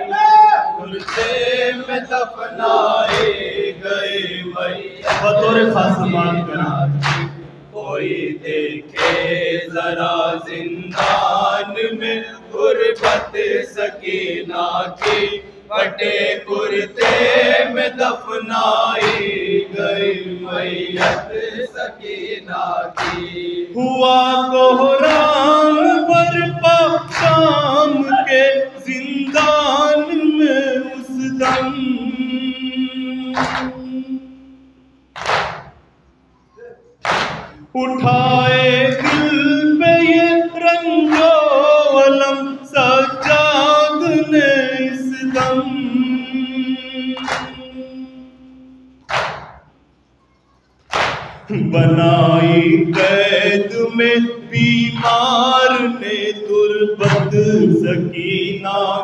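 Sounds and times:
man leading chant into microphone: 0.0 - 34.5, 37.7 - 48.5, 51.4 - 59.0
group of men singing: 0.0 - 34.6, 37.6 - 48.8, 51.4 - 59.0
chest-beating slaps: 5.0 - 7.5, 8.9 - 9.4, 11.0 - 11.3, 15.0 - 15.4, 17.0 - 17.4, 19.0 - 19.4, 23.0 - 23.4, 33.4 - 33.7, 35.2 - 35.8, 37.0 - 37.6, 47.2 - 47.6, 49.0 - 49.7, 50.9 - 51.5.

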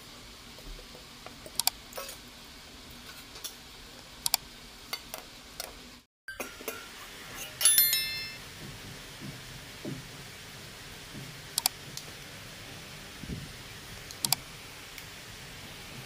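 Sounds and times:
ringing steel clink: 6.3 - 8.4
spoon clinking on steel plate: 6.3 - 8.4.

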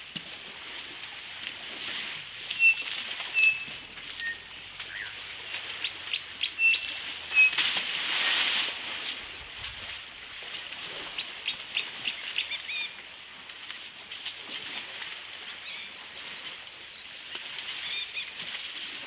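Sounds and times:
water splashing: 0.0 - 12.1
birds chirping and whistling: 2.6 - 5.1, 6.5 - 7.6.

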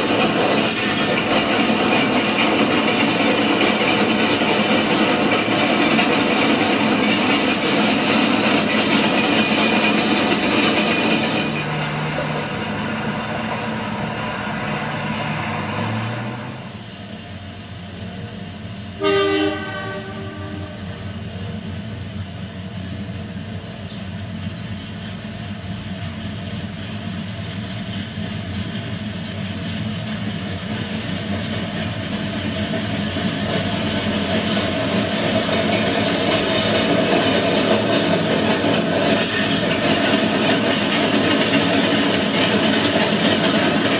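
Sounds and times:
model train rolling on track: 0.0 - 43.9
diesel horn blast: 19.0 - 20.8.

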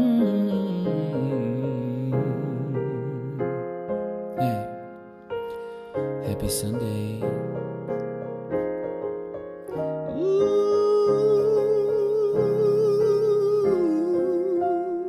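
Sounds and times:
keyboard chords: 0.0 - 15.0.

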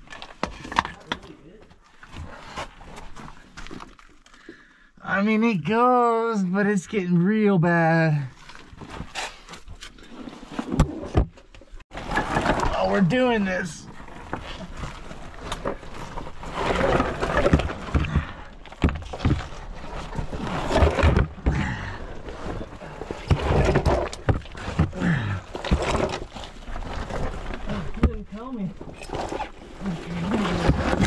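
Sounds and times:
bodies scraping against rock: 8.3 - 11.2, 11.9 - 31.0
knocks and thumps: 16.7 - 22.0, 23.1 - 26.4.

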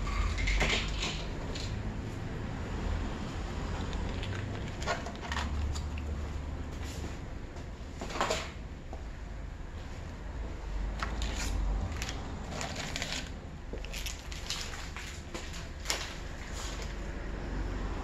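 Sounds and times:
paper packets rustling: 11.0 - 17.0.

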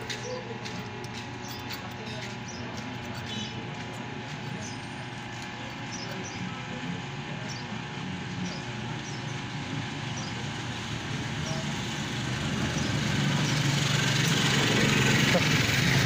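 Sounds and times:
road traffic rumble: 0.0 - 16.0
vehicle passing: 10.7 - 16.0.

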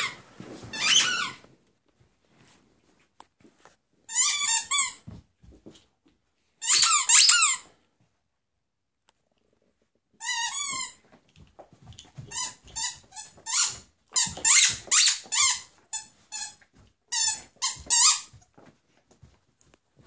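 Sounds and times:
squeaky dog toy squeaking: 0.0 - 1.4, 4.1 - 5.1, 6.6 - 7.7, 10.2 - 11.0, 12.2 - 18.4.

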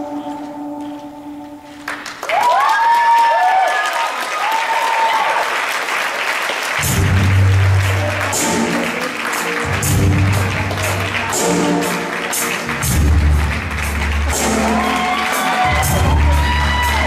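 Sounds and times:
audience applauding: 1.8 - 17.0
whooping cheers: 2.2 - 5.6, 14.5 - 17.0
bass-heavy music: 6.8 - 17.0.

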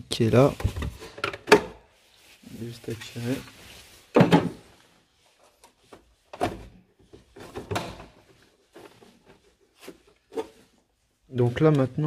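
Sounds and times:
plastic cover clunking: 4.1 - 4.7.

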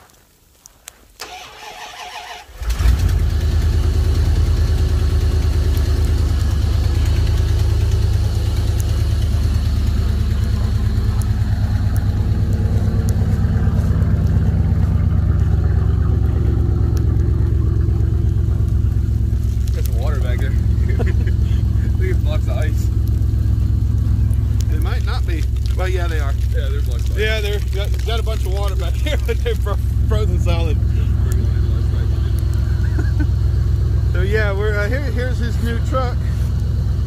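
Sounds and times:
engine cranking on starter: 1.2 - 11.7
engine idling: 1.2 - 37.0.

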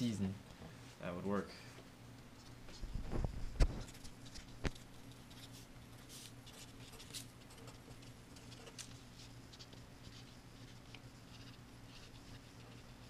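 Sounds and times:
steady low hum: 0.0 - 13.0
marker scratching on paper: 3.8 - 13.0.

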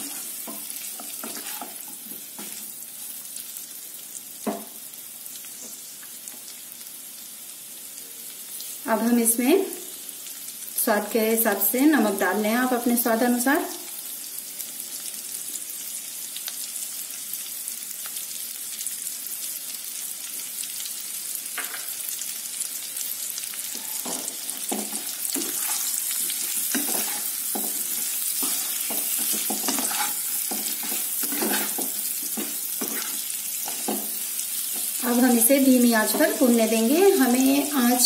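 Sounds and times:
wooden spatula scraping pan: 0.0 - 2.6, 24.0 - 34.1
potatoes sizzling in oil: 0.0 - 38.0.

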